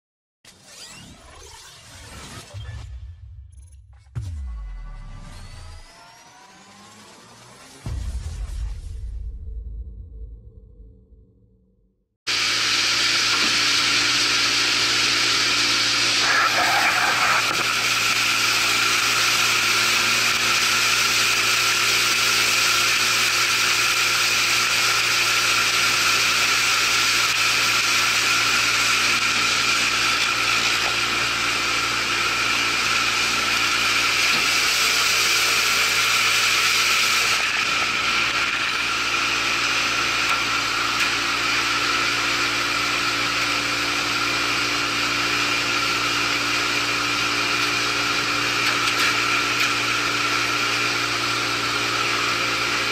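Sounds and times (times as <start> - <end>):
outboard motor droning: 12.3 - 24.6.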